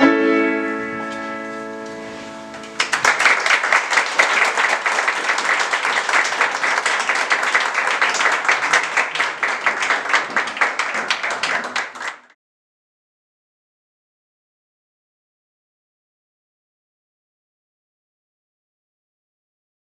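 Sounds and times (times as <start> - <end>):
audience applauding: 2.5 - 12.4.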